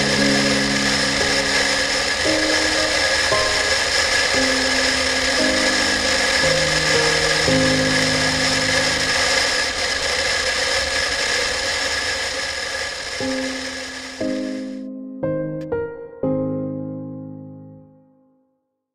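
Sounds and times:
soft piano notes: 0.0s - 9.4s, 13.2s - 18.3s
motorcycle riding noise: 0.0s - 14.7s
steady high whine: 0.0s - 14.9s.

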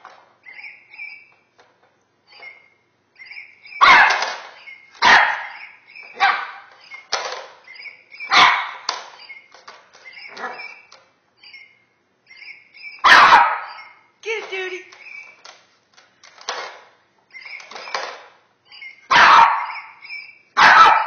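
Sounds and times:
small puppy barking: 3.8s - 4.3s, 5.0s - 6.7s, 8.2s - 8.8s, 13.0s - 14.0s, 19.1s - 21.0s.

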